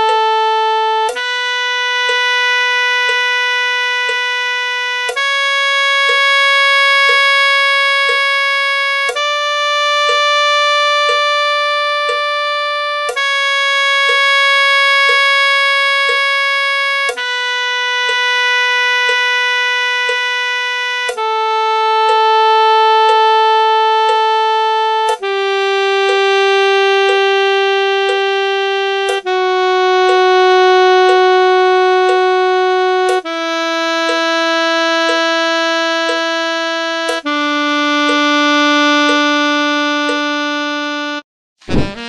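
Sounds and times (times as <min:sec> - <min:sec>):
saxophone playing long notes: 0:00.0 - 0:42.0
faint metronome clicks: 0:01.0 - 0:01.3, 0:02.1 - 0:02.3, 0:05.1 - 0:05.3, 0:06.0 - 0:09.3, 0:10.0 - 0:10.3, 0:11.1 - 0:11.3, 0:12.0 - 0:12.3, 0:13.0 - 0:13.3, 0:14.0 - 0:17.3, 0:19.1 - 0:19.3, 0:20.1 - 0:20.3, 0:21.0 - 0:21.4, 0:22.0 - 0:22.4, 0:23.0 - 0:23.4, 0:24.0 - 0:24.3, 0:25.0 - 0:25.3, 0:26.0 - 0:26.4, 0:27.0 - 0:27.4, 0:28.0 - 0:28.3, 0:29.0 - 0:29.4, 0:30.0 - 0:30.3, 0:31.0 - 0:31.4, 0:32.0 - 0:32.3, 0:33.0 - 0:37.4, 0:38.1 - 0:38.3, 0:39.0 - 0:39.3, 0:40.0 - 0:40.3.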